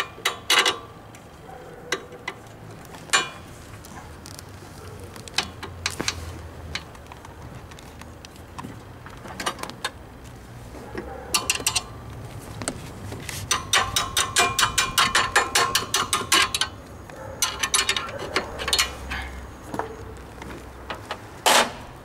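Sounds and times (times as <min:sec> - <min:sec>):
ratchet wrench clicking: 0:13.5 - 0:16.8.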